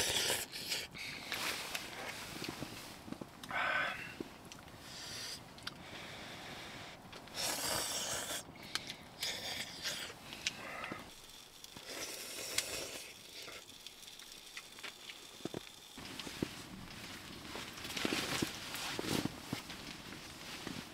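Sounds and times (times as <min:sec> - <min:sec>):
slurping soup: 0:00.0 - 0:01.4, 0:07.3 - 0:08.5
wood fire crackling: 0:00.0 - 0:20.9.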